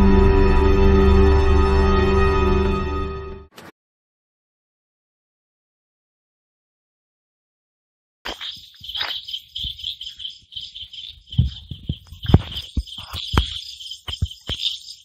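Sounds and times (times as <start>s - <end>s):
night insects chorus: 8.3s - 15.0s
knocks and thumps: 11.3s - 15.0s.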